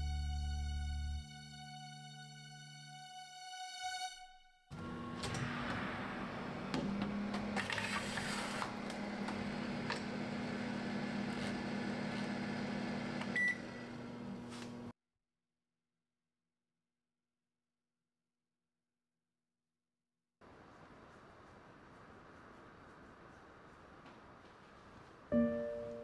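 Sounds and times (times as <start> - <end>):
oven fan hum: 4.8 - 14.9.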